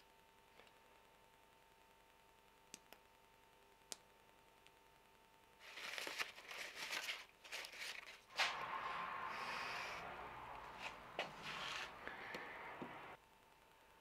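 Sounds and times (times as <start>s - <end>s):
paper towel rustling and crinkling: 5.6s - 8.6s, 10.7s - 12.0s.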